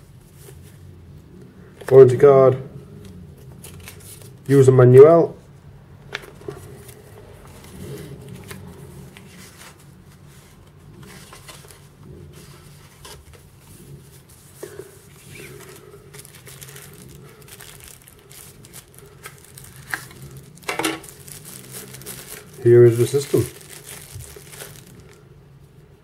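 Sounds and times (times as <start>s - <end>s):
low steady hum: 0.0s - 26.0s
paper and tissue crinkling: 3.4s - 4.7s, 6.2s - 25.3s.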